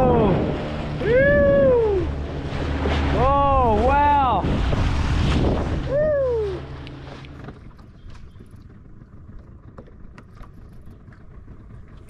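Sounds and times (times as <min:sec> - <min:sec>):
loud wind: 0:00.0 - 0:07.1
water noise: 0:00.0 - 0:12.0
person's drawn-out exclamation: 0:01.0 - 0:02.1.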